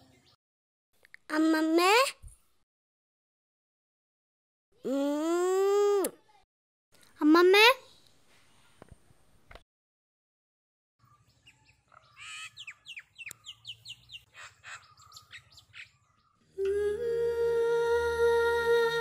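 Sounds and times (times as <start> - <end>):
small bird chirping: 11.0 - 16.6.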